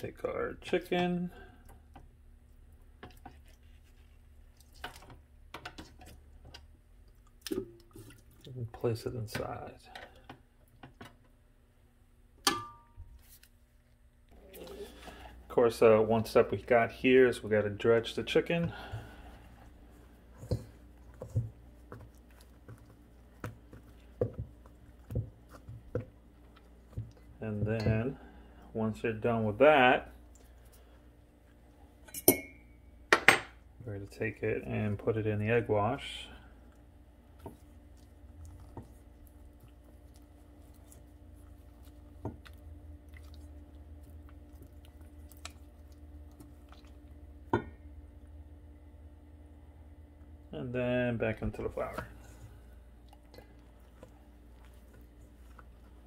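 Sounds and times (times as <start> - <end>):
steady low hum: 0.0 - 56.0
wet squishing of raw chicken: 7.0 - 8.6, 36.6 - 47.4, 51.8 - 56.0.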